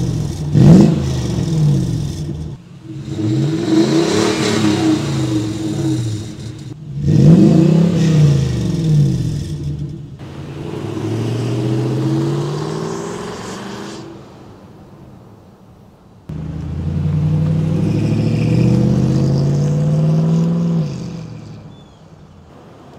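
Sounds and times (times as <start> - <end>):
truck engine revving: 0.0 - 14.4, 16.3 - 22.8
truck accelerating away: 0.0 - 14.6, 16.3 - 22.9.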